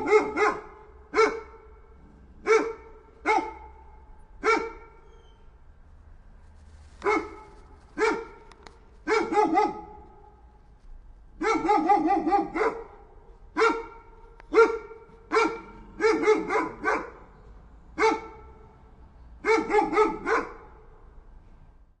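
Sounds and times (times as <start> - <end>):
dog barking: 0.0 - 1.8, 2.4 - 5.1, 7.0 - 10.4, 11.4 - 17.3, 18.0 - 18.8, 19.4 - 21.0.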